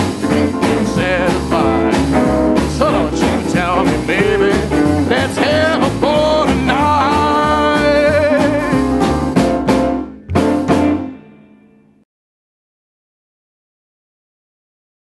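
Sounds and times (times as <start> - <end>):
man singing with vibrato: 0.0 - 9.0
rockabilly band playing: 0.0 - 11.5.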